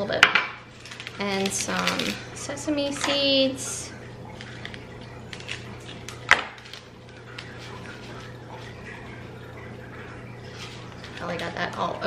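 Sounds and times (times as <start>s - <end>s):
steady low hum: 0.0s - 12.0s
plastic bag crinkling: 0.7s - 3.0s, 4.3s - 9.2s, 10.4s - 11.8s
seeds ticking on a plate: 0.8s - 2.2s, 4.2s - 9.1s.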